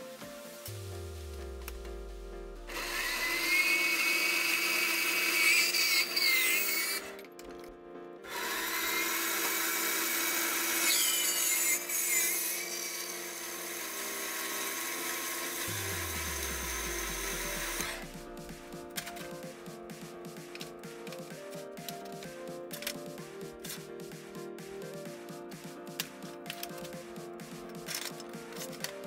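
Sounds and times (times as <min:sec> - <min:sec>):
band saw cutting steel tube: 0:02.6 - 0:07.2, 0:08.2 - 0:19.4.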